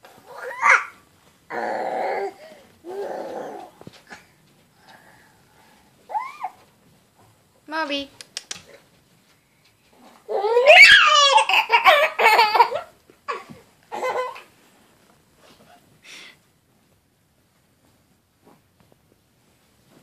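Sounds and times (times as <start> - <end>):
baby laughing: 10.3 - 14.5.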